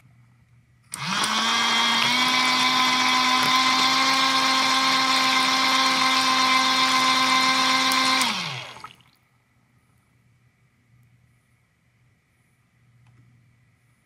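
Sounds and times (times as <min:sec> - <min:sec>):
toy electric motor whining: 0:00.9 - 0:08.8.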